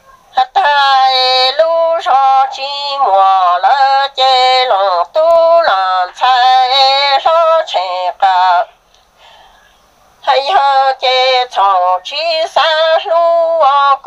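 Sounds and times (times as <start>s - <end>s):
breaths: 8.8s - 10.0s.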